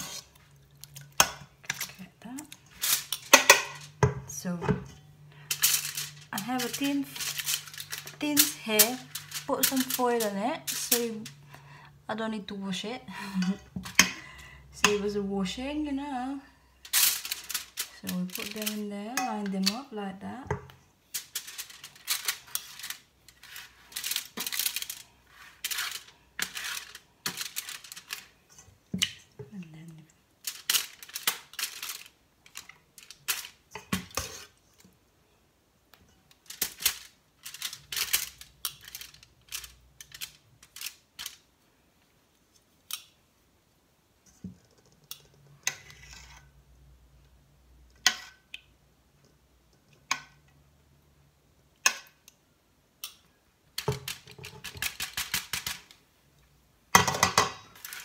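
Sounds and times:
tongs clacking on foil: 0.0s - 4.0s, 5.4s - 11.4s, 16.9s - 19.9s, 21.1s - 28.4s, 30.4s - 34.6s, 36.3s - 41.5s, 53.0s - 56.0s, 57.8s - 58.0s.

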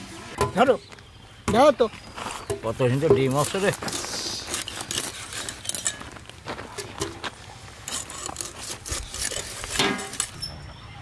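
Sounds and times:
fish scraping on steel blade: 7.8s - 10.5s.

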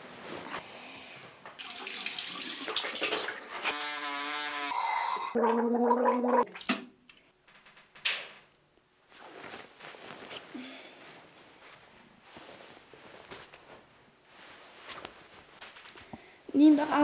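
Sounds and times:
electric toothbrush buzzing: 3.5s - 4.9s
person gargling water: 4.9s - 6.5s.

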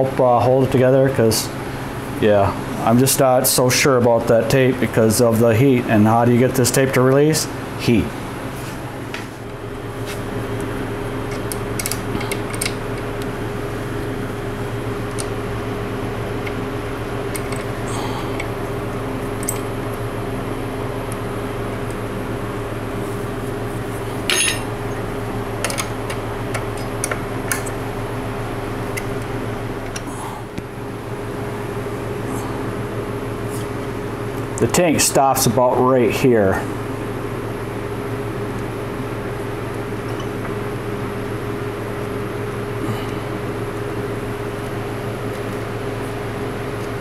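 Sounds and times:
machine hum: 0.0s - 47.0s.

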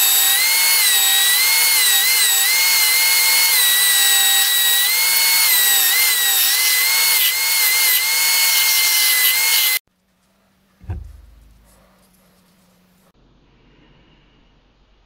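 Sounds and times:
low thump: 10.8s - 11.8s.

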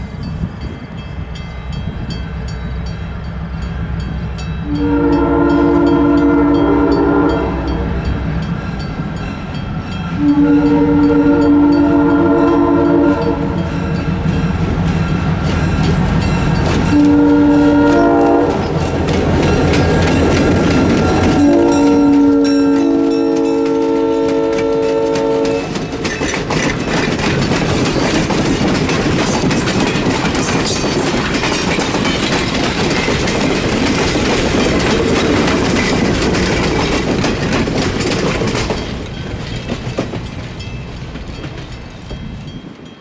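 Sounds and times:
locomotive air horn chord: 4.6s - 8.0s, 10.2s - 13.7s, 16.9s - 18.8s, 20.9s - 25.8s
train wheels clicking over rail joints: 13.4s - 43.0s.

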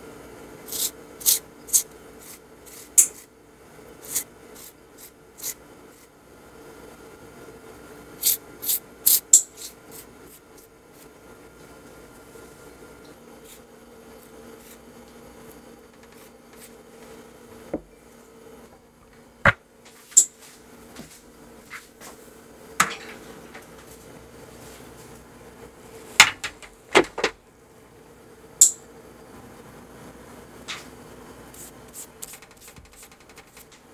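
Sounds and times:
faint steady hum: 0.0s - 33.9s
kitchen taps and knocks: 22.8s - 23.6s, 26.2s - 27.4s, 32.3s - 33.9s.

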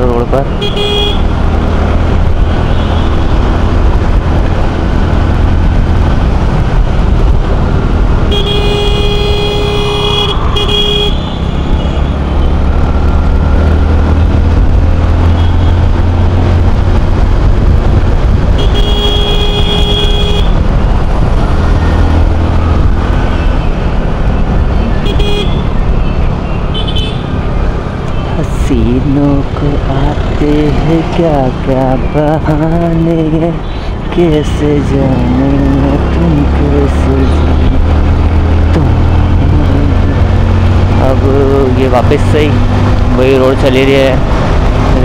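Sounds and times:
motorcycle engine rumble: 0.0s - 45.0s
wind: 0.0s - 45.0s
vehicle horn honking: 0.6s - 1.3s, 8.3s - 12.1s, 15.3s - 15.8s, 18.6s - 20.6s, 25.0s - 25.7s, 26.7s - 27.2s.

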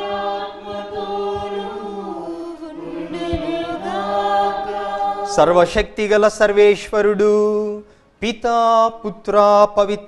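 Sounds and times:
women singing in unison: 0.0s - 5.7s.

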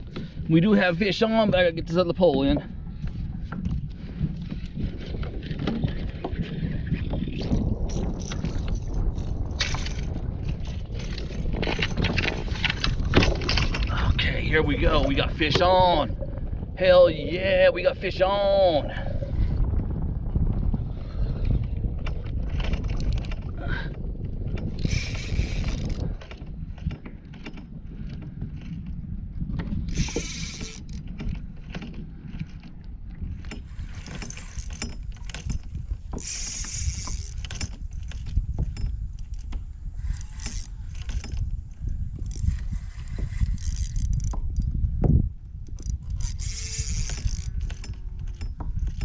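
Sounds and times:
constant low rumble: 0.0s - 49.0s
fishing reel gears ticking: 24.7s - 26.1s, 29.9s - 31.1s, 33.5s - 44.6s, 45.6s - 49.0s.

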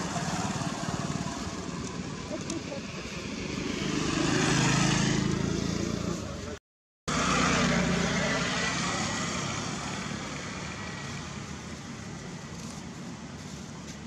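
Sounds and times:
background traffic: 0.0s - 14.0s
vehicle passing close: 3.1s - 6.4s, 7.1s - 11.6s.

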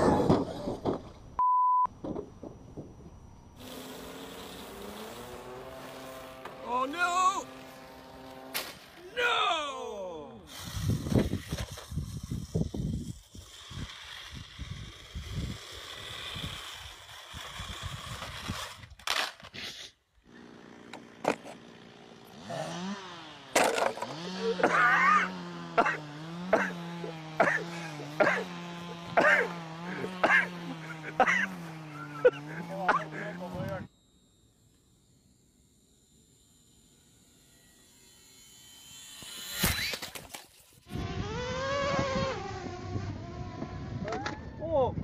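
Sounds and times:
censor bleep: 1.4s - 1.9s
rc car motor whining: 3.4s - 44.6s
loud jumble of sound: 4.7s - 10.6s, 22.5s - 34.0s.

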